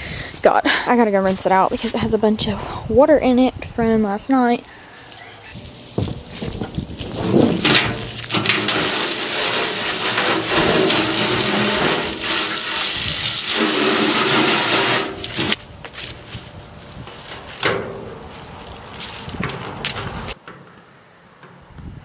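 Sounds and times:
wheelbarrow thump: 5.6s - 12.8s, 13.5s - 15.6s, 17.3s - 18.3s
water splashing into wheelbarrow: 5.6s - 15.6s.

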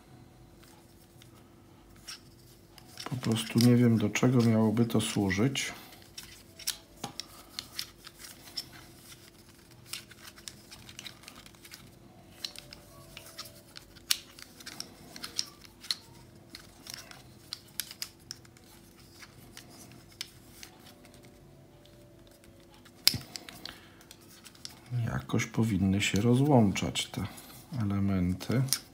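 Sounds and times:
plastic puzzle clicking: 2.8s - 5.2s, 6.0s - 24.9s, 28.3s - 28.9s.

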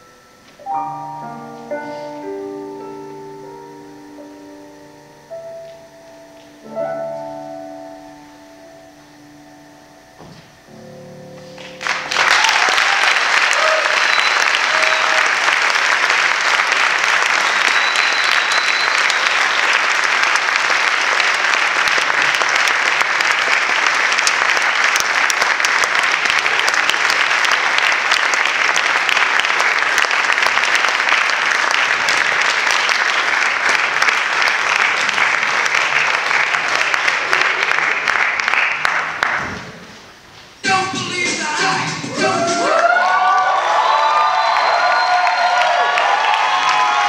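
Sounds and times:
audience applauding: 11.6s - 39.7s, 42.3s - 47.0s.

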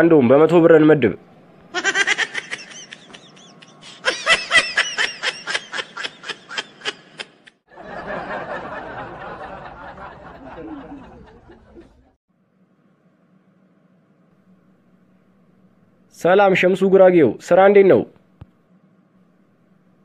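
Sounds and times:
cartoon man cackling: 1.7s - 7.5s.

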